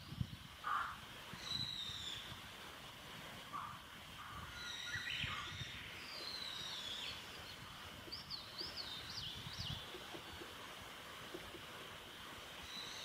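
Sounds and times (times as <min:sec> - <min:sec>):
songbirds singing: 0:00.0 - 0:02.4, 0:03.6 - 0:10.6, 0:12.5 - 0:13.0
steady outdoor hiss: 0:00.0 - 0:13.0.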